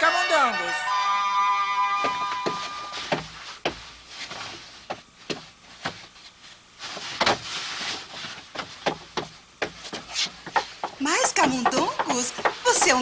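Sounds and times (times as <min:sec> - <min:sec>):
sharp knocks and taps: 0:08.5 - 0:13.0.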